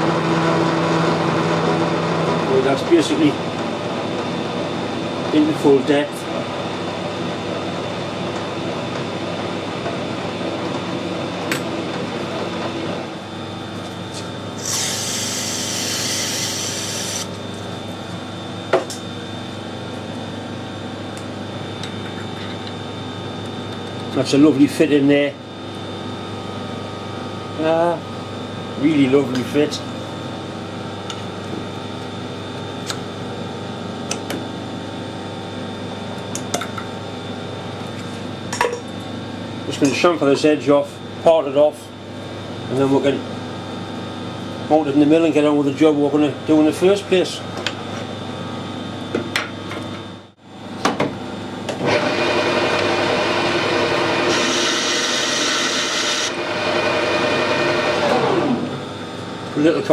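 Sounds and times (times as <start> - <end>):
machine hum: 0.0 - 24.4, 45.6 - 59.9
metal lathe running: 14.4 - 17.5, 51.8 - 58.8
lathe tool cutting metal: 14.6 - 17.4, 51.8 - 58.7.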